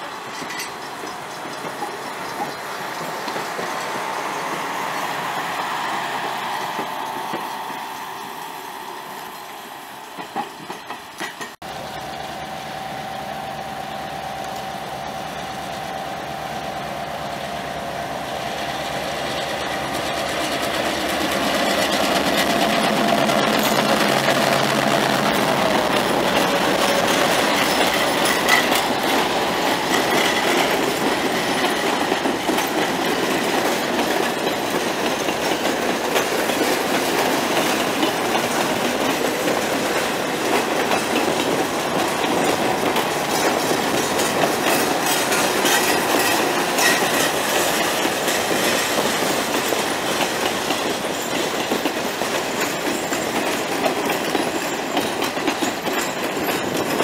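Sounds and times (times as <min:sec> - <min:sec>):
train wheels clattering over rail joints: 0:00.0 - 0:08.4, 0:10.1 - 0:11.6, 0:18.7 - 0:57.0.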